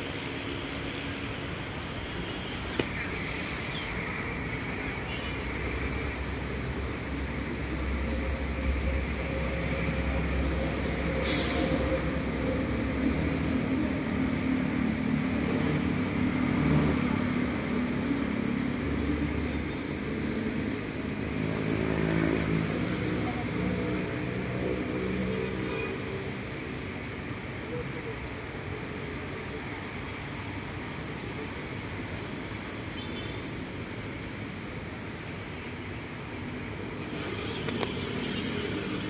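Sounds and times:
engines rumbling: 0.0 - 39.0
short hiss: 11.2 - 11.8.

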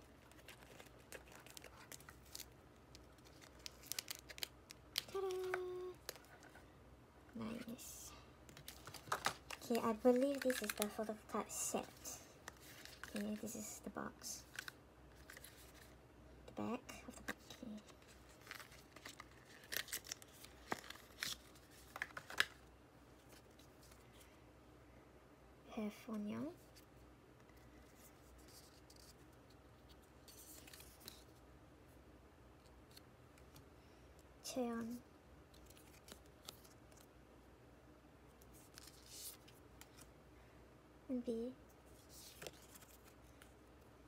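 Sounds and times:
card and paper rustling: 0.0 - 6.6, 8.5 - 16.0, 17.1 - 22.6, 27.6 - 31.4, 35.5 - 37.1, 38.4 - 40.1, 41.9 - 43.6
card sliding with soft rustle: 11.7 - 13.6, 26.6 - 31.4, 38.4 - 40.1, 41.8 - 43.6.

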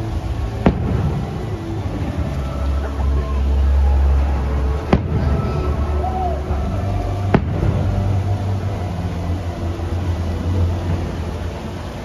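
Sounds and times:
low rumble: 0.0 - 12.0
fireworks bangs: 0.5 - 3.2, 4.7 - 6.2, 7.1 - 8.5.

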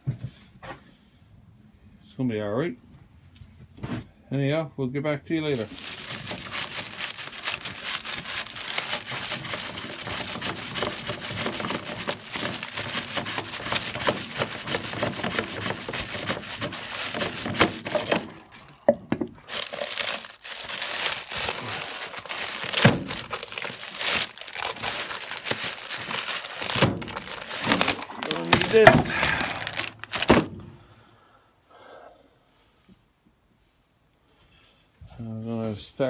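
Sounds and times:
plastic wrap crinkling: 5.5 - 30.5.

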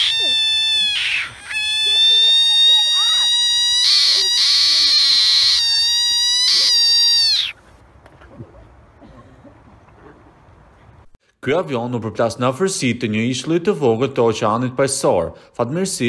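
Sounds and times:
frog calling: 0.0 - 7.6.

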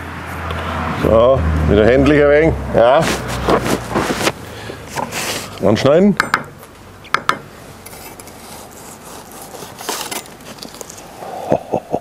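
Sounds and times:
knife scraping strokes: 3.0 - 5.6, 7.8 - 11.0
knife slicing roast beef: 8.4 - 10.3.

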